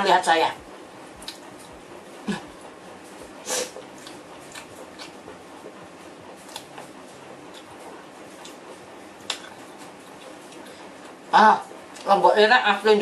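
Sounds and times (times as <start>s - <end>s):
eating clicks and smacks: 1.2s - 1.8s, 3.2s - 5.4s, 6.4s - 8.6s, 9.2s - 11.2s.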